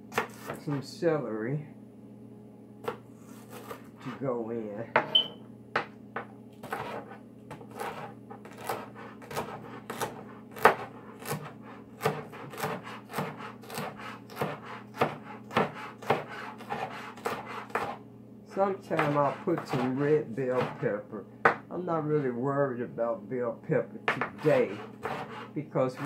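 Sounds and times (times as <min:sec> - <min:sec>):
knife chopping on wooden board: 0:00.1 - 0:00.6, 0:02.8 - 0:03.9, 0:05.0 - 0:18.0, 0:18.9 - 0:21.6, 0:24.1 - 0:26.0.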